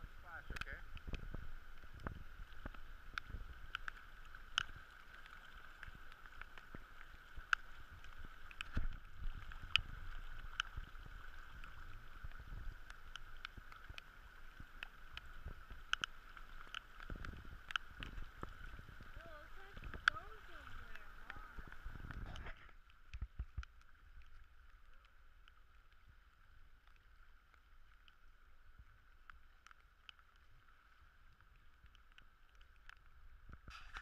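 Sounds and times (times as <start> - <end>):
floodwater sloshing: 0.0 - 26.4
rain hiss: 0.0 - 34.0
raindrops hitting camera: 0.0 - 34.0.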